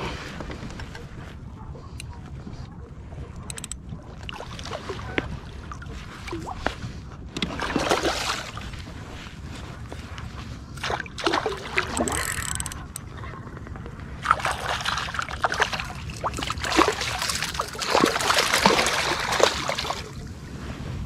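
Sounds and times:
fish thrashing and splashing: 7.4 - 9.0, 10.8 - 13.6, 14.2 - 20.2.

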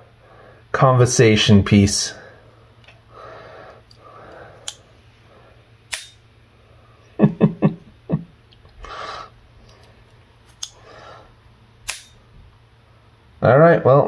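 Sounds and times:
switchblade knife clicks: 11.9 - 12.2.

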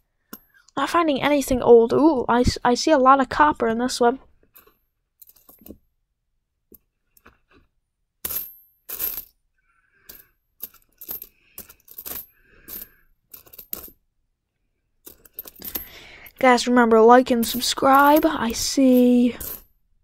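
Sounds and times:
coins clinking: 8.2 - 9.3, 10.0 - 14.0, 15.0 - 16.1, 17.4 - 19.7.

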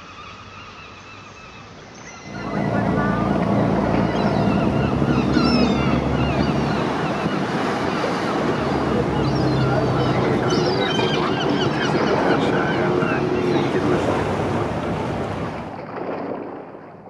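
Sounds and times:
faint steady tones: 2.2 - 15.8
motorboat engine hum: 2.2 - 16.5
water rushing against hull: 2.2 - 17.0
wind on microphone: 2.2 - 17.0.

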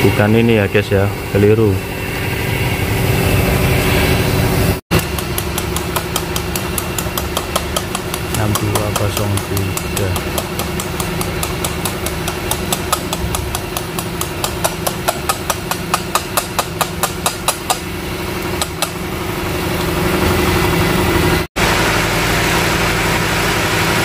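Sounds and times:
quick regular ticking: 4.9 - 17.9.

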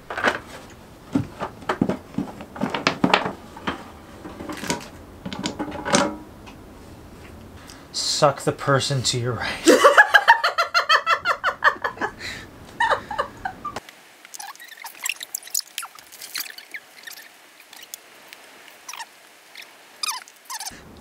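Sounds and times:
laughter: 9.6 - 13.8.

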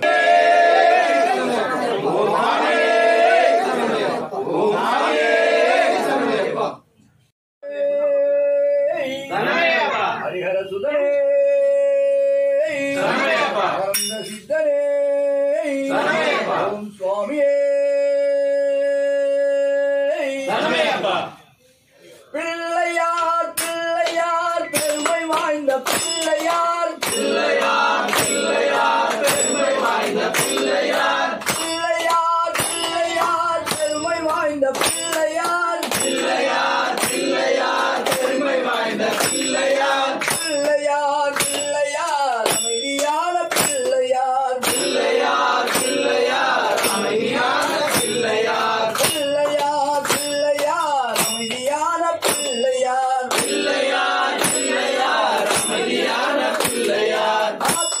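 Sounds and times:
voices singing devotional song: 0.0 - 6.9, 7.6 - 58.0.

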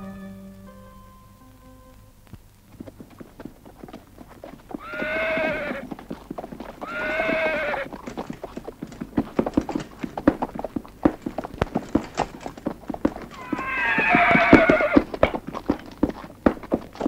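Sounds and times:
horse hooves clopping: 2.1 - 17.0
horse whinnying: 4.4 - 8.7, 13.1 - 15.3.

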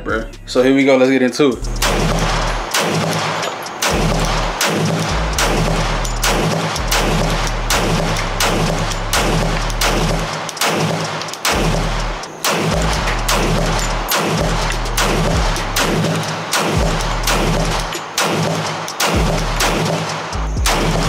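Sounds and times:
music with deep bass and beat: 0.0 - 21.0.

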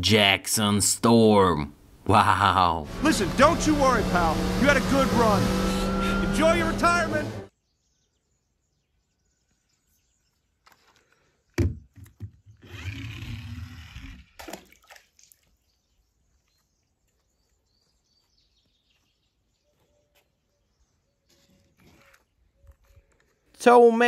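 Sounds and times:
object splashing into water: 14.4 - 15.4.

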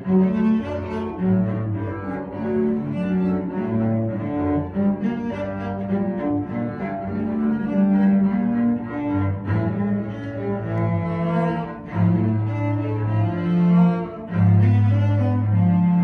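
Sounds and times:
bowed cello duet: 0.0 - 16.0.

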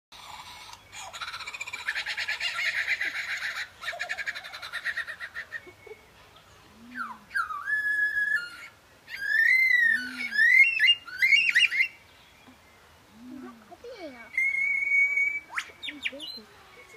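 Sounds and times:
lyrebird rapid pulsed chattering: 0.2 - 6.0, 13.4 - 16.5
lyrebird downward-sweeping whistles: 7.0 - 12.0, 14.0 - 16.9.

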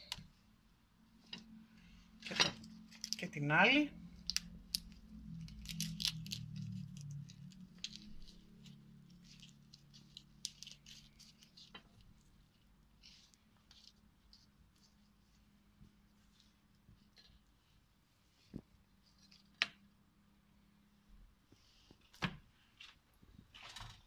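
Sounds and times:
eggplant skin crackling being peeled: 2.6 - 3.3, 4.0 - 15.0.

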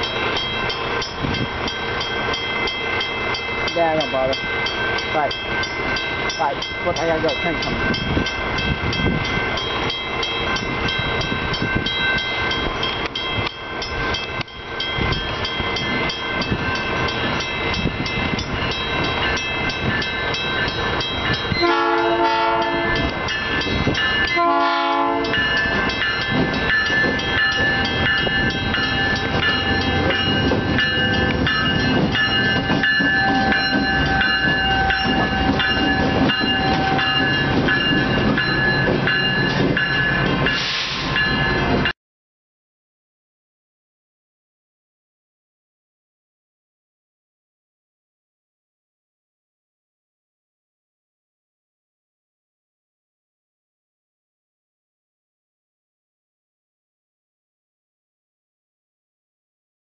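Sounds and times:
crossing bell ringing: 0.0 - 41.9
locomotive horn blasts: 21.6 - 23.1, 24.3 - 25.4, 36.5 - 37.3
locomotive engine rumble: 22.2 - 41.9.

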